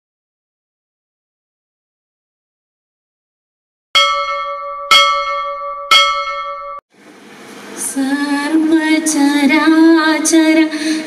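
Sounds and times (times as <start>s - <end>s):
bell ringing: 4.0s - 6.8s
woman singing into a microphone: 7.8s - 11.0s.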